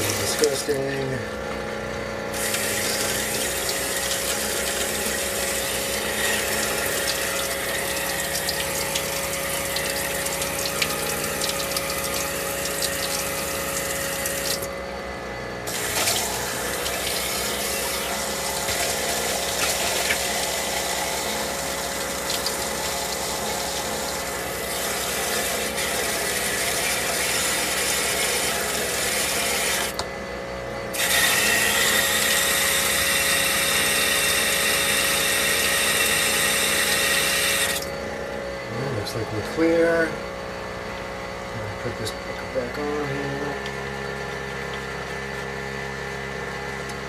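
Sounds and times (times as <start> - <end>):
electric water pump running: 0.0 - 47.0
faucet water rushing into sink: 2.3 - 14.7, 15.7 - 29.9, 31.0 - 37.9.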